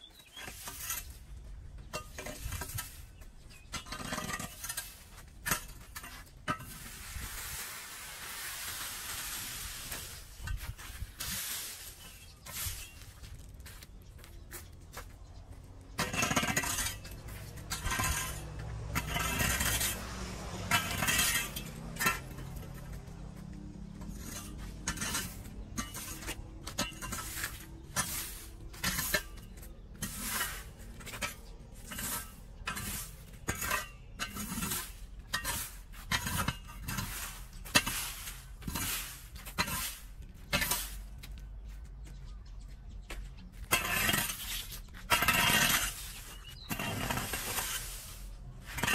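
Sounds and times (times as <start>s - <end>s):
broom sweeping leaves on concrete: 0.1s - 1.4s, 2.2s - 3.2s, 6.0s - 14.0s, 24.0s - 33.7s, 34.5s - 41.2s, 43.9s - 48.9s.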